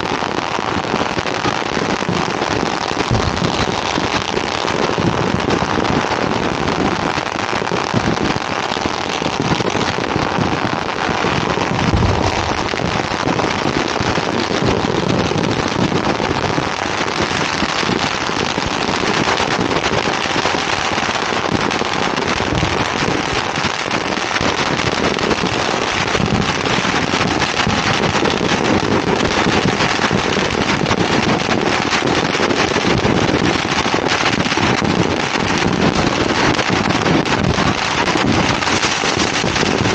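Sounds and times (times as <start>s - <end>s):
firecrackers crackling: 0.0s - 39.9s
deep booms: 3.0s - 5.2s, 11.7s - 14.7s.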